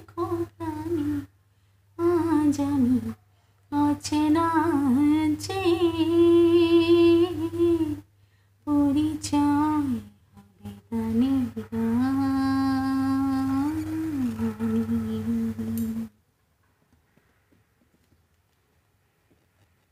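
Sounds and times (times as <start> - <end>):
woman humming: 10.0 - 16.2.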